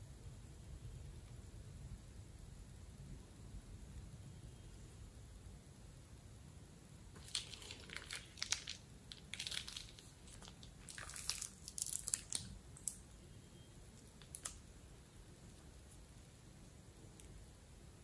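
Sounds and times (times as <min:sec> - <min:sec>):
plastic piping bag crinkling: 0:07.2 - 0:13.2, 0:14.0 - 0:14.7.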